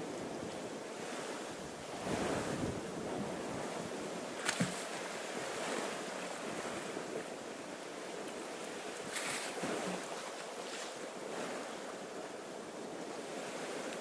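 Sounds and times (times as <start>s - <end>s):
wind buffeting microphone: 0.0s - 10.2s
water washing and surf: 0.0s - 14.0s.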